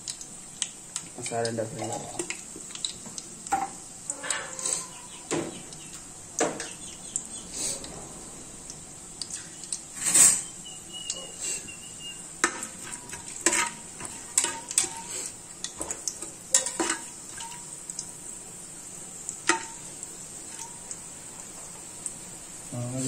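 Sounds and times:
spices sizzling in fat: 0.0s - 23.0s
ladle scraping metal pot: 4.1s - 5.3s, 9.3s - 11.4s, 12.4s - 15.4s.

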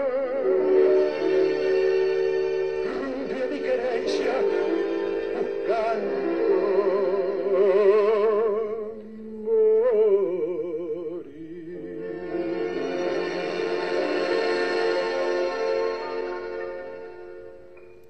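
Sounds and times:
tango orchestra: 0.0s - 18.0s
singer with wide vibrato: 2.8s - 14.0s.

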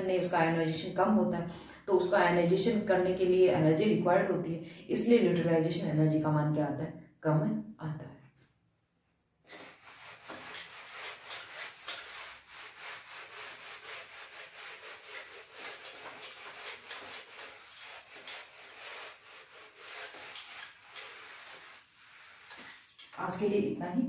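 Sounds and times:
eraser wiping whiteboard: 9.4s - 23.4s.

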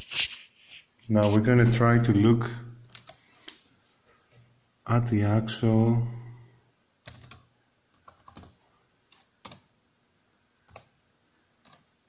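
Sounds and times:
laptop keyboard keystrokes: 2.8s - 3.6s, 7.0s - 9.7s, 10.7s - 10.9s, 11.6s - 11.9s.

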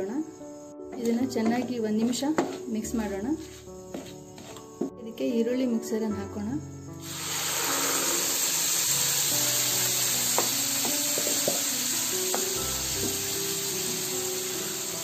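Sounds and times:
paste sizzling in hot oil: 7.0s - 15.0s
spatula knocking against pan: 10.4s - 11.7s.

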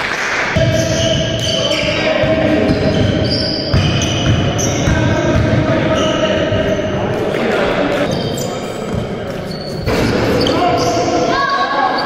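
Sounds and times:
basketball dribbling: 0.6s - 5.8s
sneakers squeaking: 0.6s - 12.0s.

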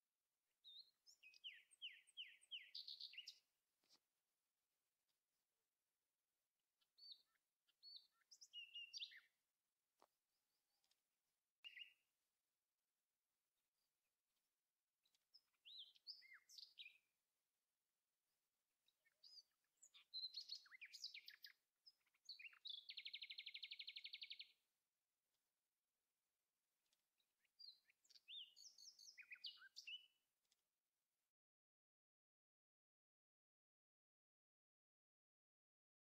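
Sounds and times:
songbird singing: 0.6s - 4.1s, 6.8s - 9.4s, 10.0s - 12.2s, 15.0s - 17.2s, 18.8s - 24.6s, 26.8s - 30.6s.

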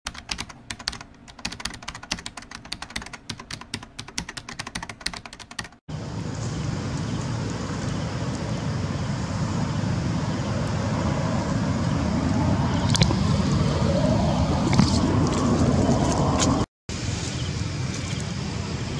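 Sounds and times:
fast keyboard-like clicks: 0.1s - 5.8s
outdoor rumbling noise: 5.9s - 18.9s.

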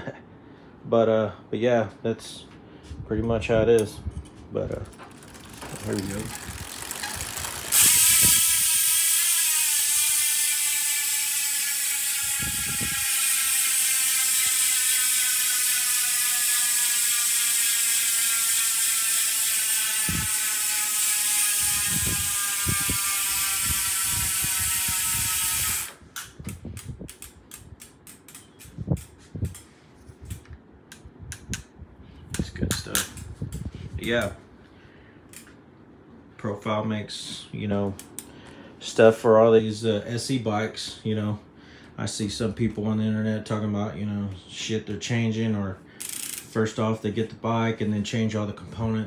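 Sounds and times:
bicycle hub ratchet buzz: 4.9s - 26.0s, 26.8s - 29.7s, 46.0s - 46.6s.

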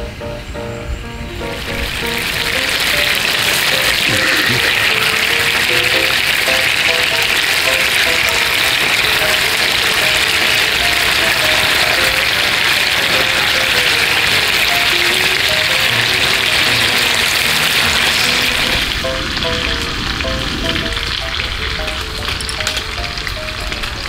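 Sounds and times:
meat sizzling in a frying pan: 1.5s - 24.0s.

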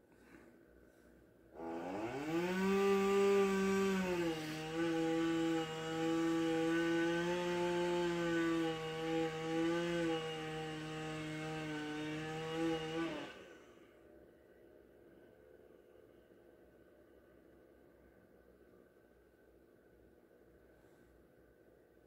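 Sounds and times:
chainsaw cutting wood: 1.6s - 13.6s.

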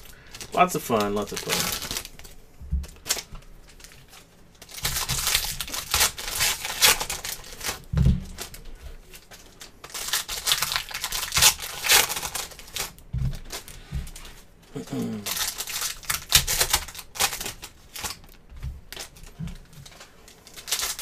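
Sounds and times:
foil wrappers tearing and crinkling: 0.0s - 21.0s
thump: 7.9s - 8.3s.

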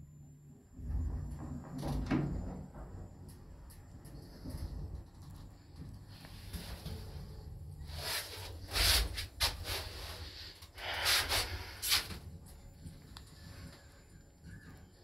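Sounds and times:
breathy hissing bursts: 10.2s - 12.2s.

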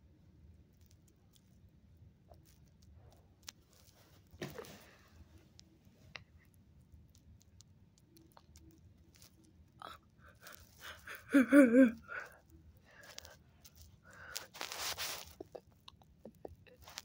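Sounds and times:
light rustling and scratching: 2.3s - 11.0s, 12.9s - 17.0s.

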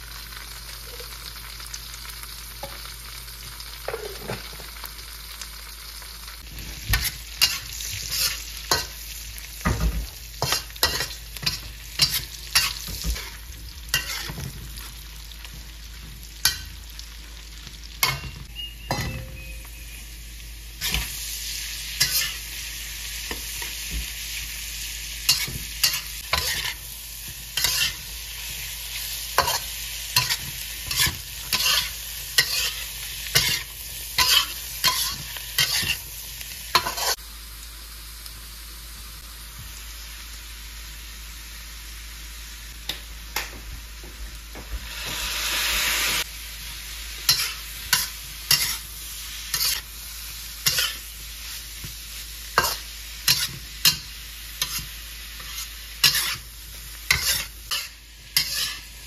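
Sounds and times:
food sizzling in oil: 0.0s - 59.0s
spatula scraping and knocking wok: 6.4s - 9.0s, 9.6s - 16.8s, 20.8s - 21.2s, 22.0s - 22.5s, 25.3s - 28.6s, 29.3s - 36.1s, 36.7s - 37.2s, 47.2s - 49.9s, 50.6s - 59.0s.

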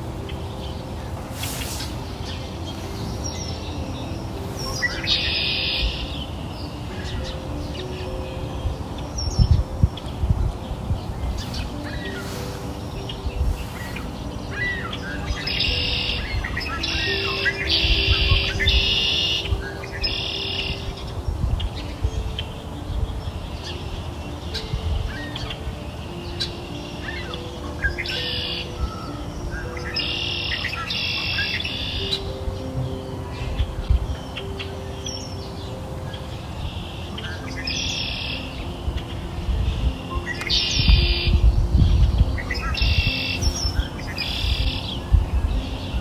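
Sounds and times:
birds chirping: 0.0s - 46.0s
soft background music: 0.0s - 46.0s.

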